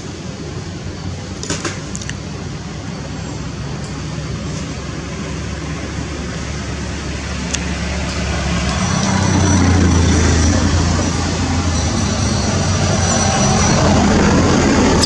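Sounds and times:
vehicle engine low rumble: 0.0 - 15.0.

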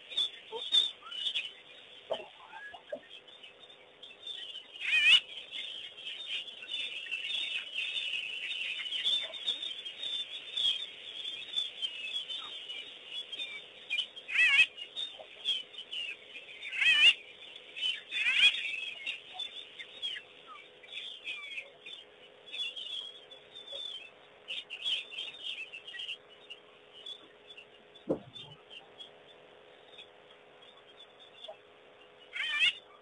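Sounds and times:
birds chattering with high chirps: 0.0 - 33.0
loud wavering warbling bird call: 4.8 - 5.2, 14.3 - 15.2, 16.6 - 17.2, 18.0 - 19.5, 32.3 - 33.0.

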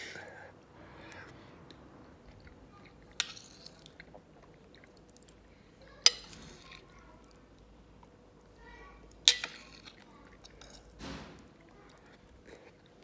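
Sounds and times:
person chewing: 0.9 - 5.6, 11.6 - 13.0.

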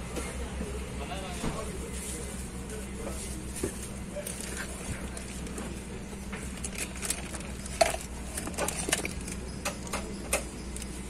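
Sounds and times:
steady low hum: 0.0 - 11.0
plastic packaging crinkling: 4.2 - 9.5.

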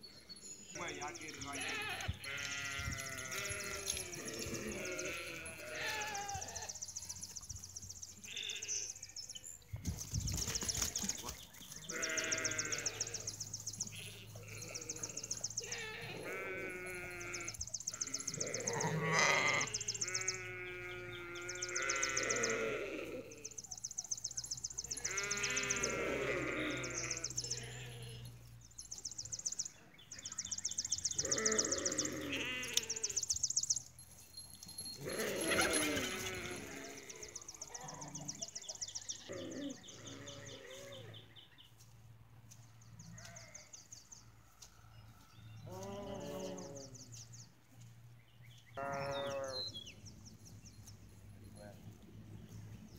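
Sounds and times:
farm animals bleating: 0.8 - 7.2, 8.1 - 9.2, 10.7 - 23.7, 24.8 - 28.4, 29.5 - 33.8, 34.7 - 41.5, 42.5 - 44.6, 45.3 - 47.8, 48.6 - 50.0.

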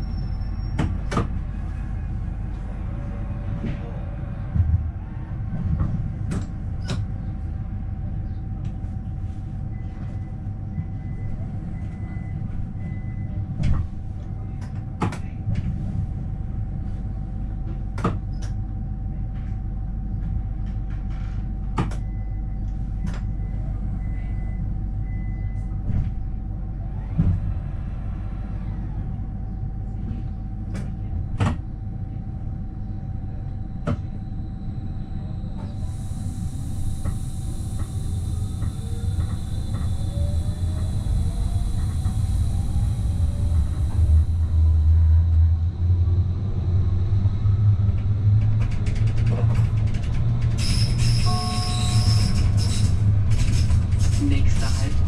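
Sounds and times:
constant whining tone: 32.6 - 55.0.

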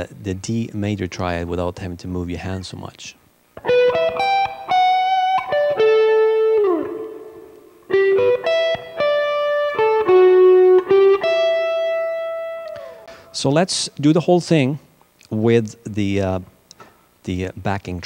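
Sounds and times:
electric guitar arpeggios: 3.6 - 13.2.

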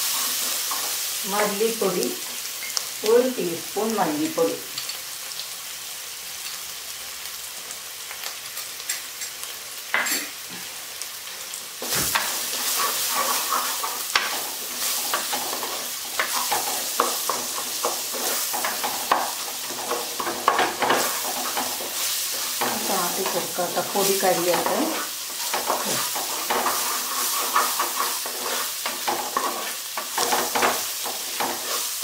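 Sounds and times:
masala sizzling in a pot: 0.0 - 32.0
wooden spatula scraping a pot: 11.8 - 32.0.

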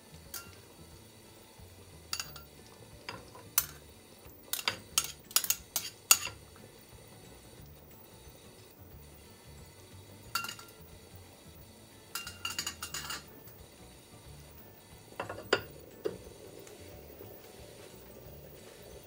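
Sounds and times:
metal tongs clinking on ceramic: 0.3 - 0.6, 2.1 - 2.5, 3.1 - 3.8, 4.5 - 6.4, 10.3 - 10.8, 12.1 - 13.3
ceramic lid knocking on pot: 15.2 - 16.2.

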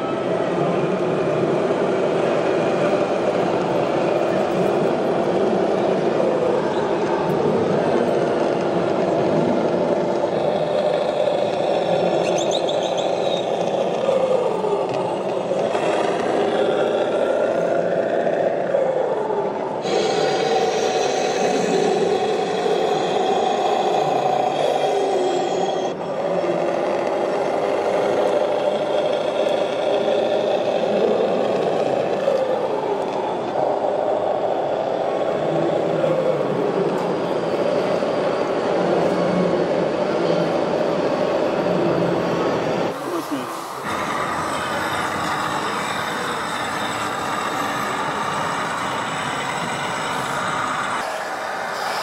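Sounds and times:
toy truck motor and gear whir: 8.1 - 18.0, 19.8 - 34.5, 43.0 - 52.0.

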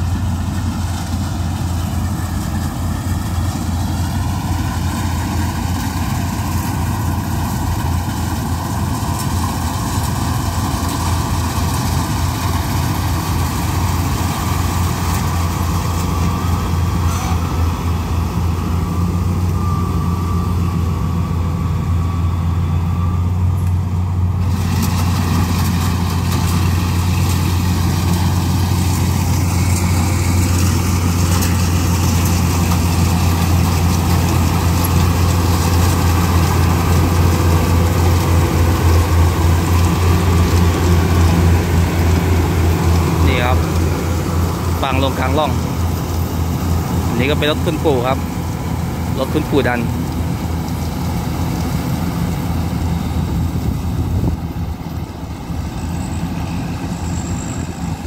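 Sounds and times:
combine harvester engine drone: 0.0 - 58.0.

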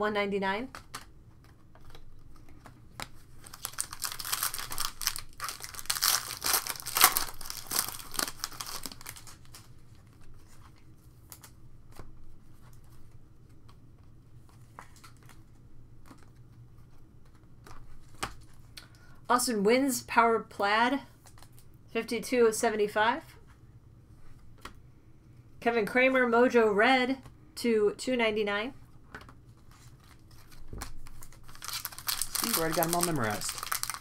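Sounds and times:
wrapper crinkling and tearing: 3.0 - 10.6, 29.5 - 34.0
cards clicking and rustling: 29.1 - 34.0.

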